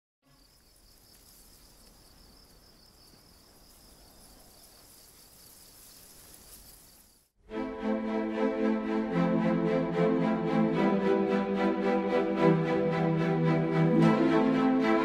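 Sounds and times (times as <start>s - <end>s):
insects chirping: 0.2s - 7.3s.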